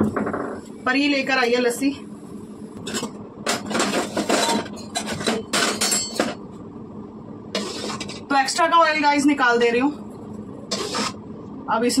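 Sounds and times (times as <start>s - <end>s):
metal utensils clinking on pots: 2.9s - 6.4s.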